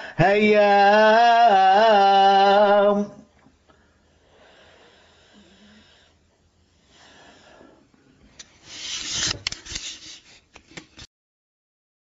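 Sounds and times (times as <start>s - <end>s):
person breathing: 0.0s - 0.2s, 3.7s - 9.1s
rushing breath: 3.7s - 9.1s.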